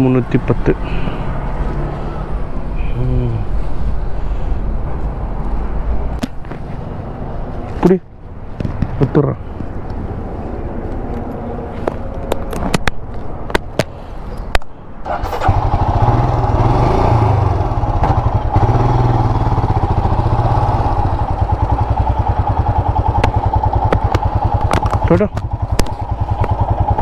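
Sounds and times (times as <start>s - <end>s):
motorcycle engine starting and idling: 15.0s - 27.0s.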